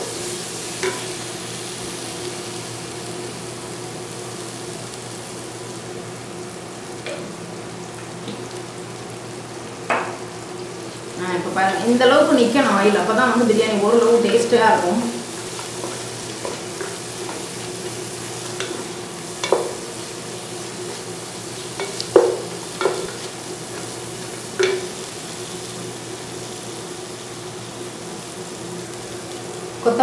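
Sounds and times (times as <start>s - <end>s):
masala sizzling in oil: 0.0s - 30.0s
spatula knocking on pan: 9.9s - 10.2s, 18.6s - 19.9s, 21.8s - 23.9s, 24.6s - 25.0s.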